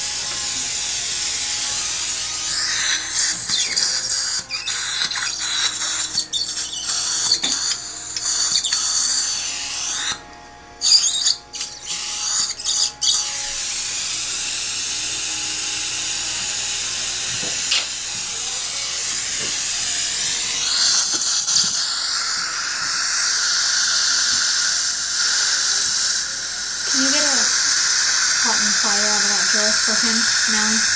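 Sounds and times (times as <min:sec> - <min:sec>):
dental handpiece motor whining: 0:00.0 - 0:30.9.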